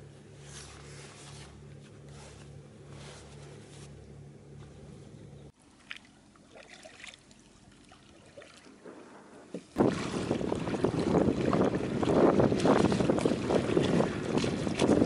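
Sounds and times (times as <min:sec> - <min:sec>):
small knocks and splashes: 0:05.7 - 0:15.0
wind buffeting microphone: 0:09.8 - 0:15.0.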